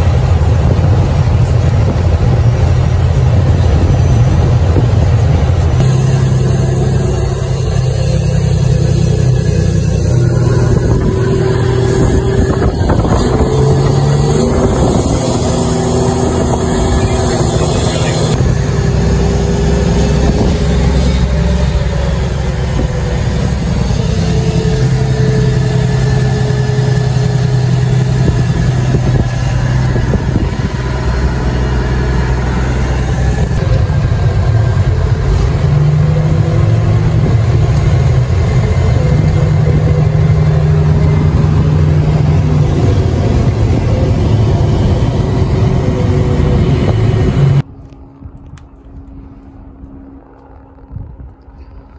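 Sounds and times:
road noise: 0:00.0 - 0:51.9
vehicle engine running: 0:00.0 - 0:51.9.

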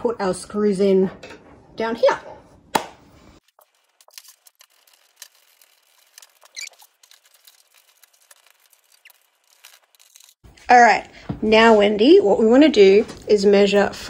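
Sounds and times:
short squeak: 0:06.4 - 0:06.8.

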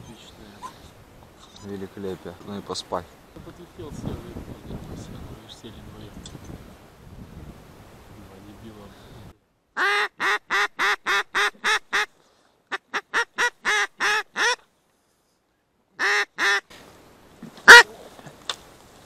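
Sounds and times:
duck call quacks: 0:09.8 - 0:12.1, 0:12.7 - 0:14.6, 0:16.0 - 0:16.6, 0:17.6 - 0:17.9.

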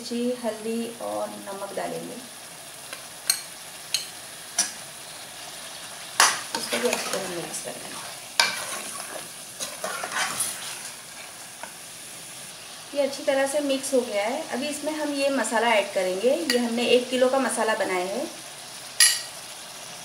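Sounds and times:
meat sizzling in oil: 0:00.0 - 0:20.0
ladle stirring and scraping: 0:06.2 - 0:11.8.

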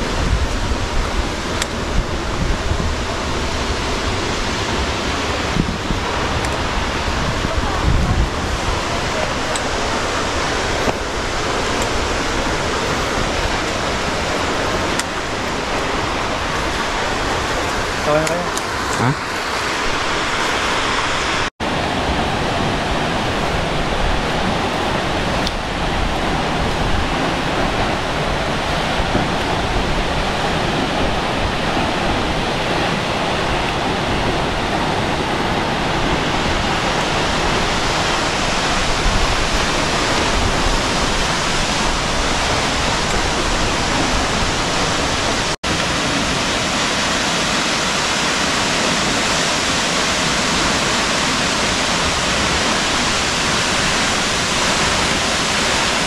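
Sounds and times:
waterfall roaring: 0:00.0 - 0:56.0.

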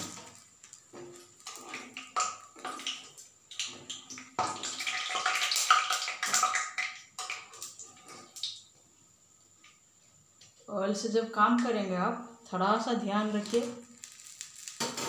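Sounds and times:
food sizzling in frying oil: 0:00.0 - 0:08.6, 0:13.2 - 0:15.0.

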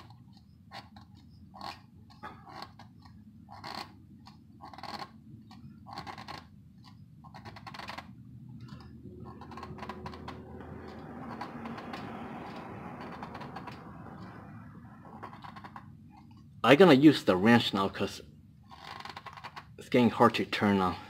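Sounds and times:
metal oil filter scraping: 0:07.3 - 0:16.6.

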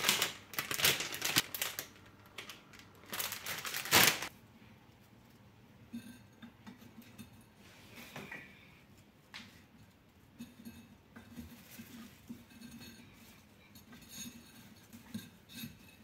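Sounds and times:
plastic and tissue paper crinkling: 0:00.0 - 0:04.3.

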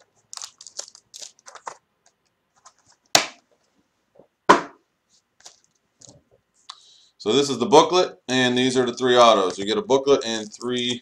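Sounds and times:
foil pack crinkling: 0:00.0 - 0:03.1, 0:10.2 - 0:11.0
sharp knocks on desk: 0:04.5 - 0:04.8.

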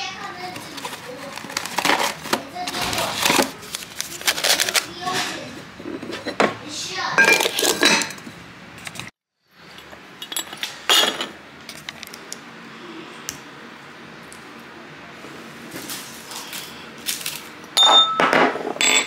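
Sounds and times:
glass clinking against glass jar: 0:07.2 - 0:08.2, 0:17.8 - 0:19.0.

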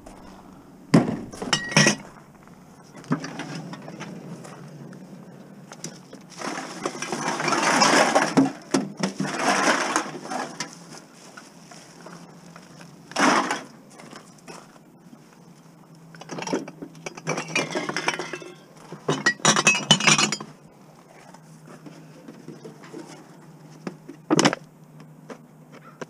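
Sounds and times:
glass bottles clinking: 0:01.0 - 0:02.1, 0:16.6 - 0:20.5.

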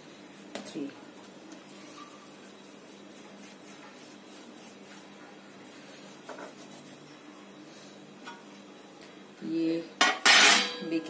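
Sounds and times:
hands rubbing bread dough: 0:00.0 - 0:07.5.

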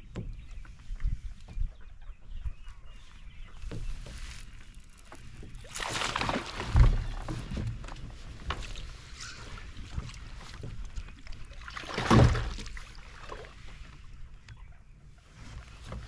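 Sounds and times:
fish splashing and thrashing: 0:03.7 - 0:14.1
loud splash: 0:05.7 - 0:07.0, 0:11.7 - 0:12.7.

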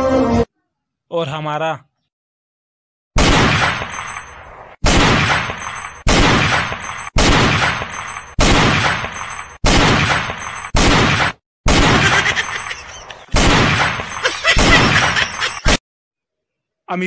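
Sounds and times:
loud blasts: 0:04.8 - 0:12.3, 0:13.3 - 0:15.1.

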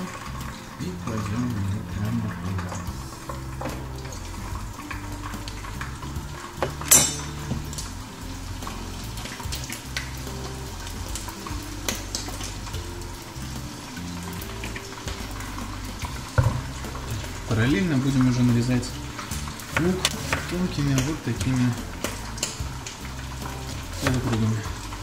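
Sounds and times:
metal utensils clinking on pot: 0:00.0 - 0:07.6, 0:19.2 - 0:25.0
fat sizzling in oil: 0:00.0 - 0:25.0
soft background music: 0:00.0 - 0:25.0
sharp metal clank: 0:06.9 - 0:07.4.

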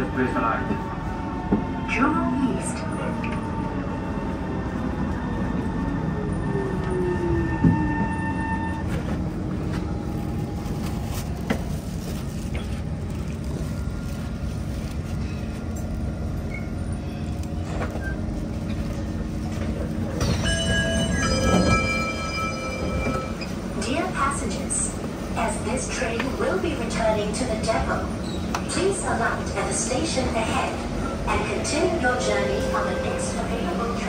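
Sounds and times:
train rumble: 0:00.0 - 0:34.0
train clunk: 0:17.6 - 0:24.1
door chime: 0:20.2 - 0:23.4.

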